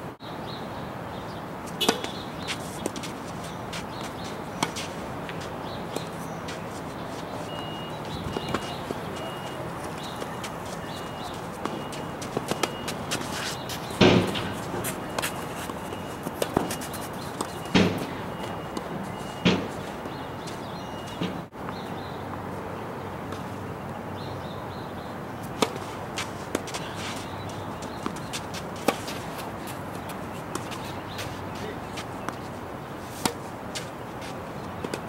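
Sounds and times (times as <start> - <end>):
tennis racquets striking ball: 1.7 - 21.8, 25.5 - 32.5, 33.1 - 35.0
ball bouncing on hard court: 1.8 - 2.2, 13.9 - 15.8, 16.4 - 18.8.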